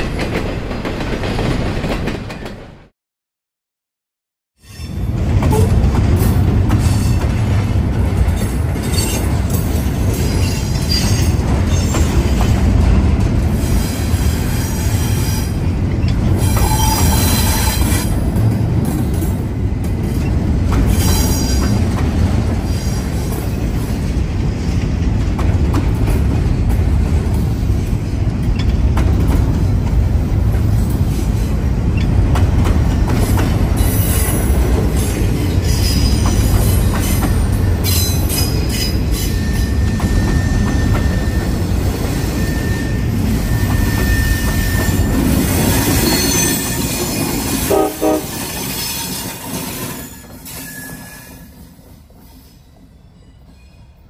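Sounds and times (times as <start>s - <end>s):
train wheels rumbling on rails: 0.0s - 2.9s, 4.8s - 54.0s
high-pitched wheel squeal: 16.4s - 18.1s, 37.8s - 47.4s, 48.2s - 51.6s.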